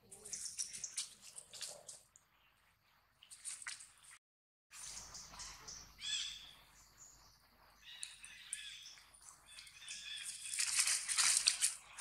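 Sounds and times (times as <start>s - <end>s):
rustling: 9.3s - 12.0s.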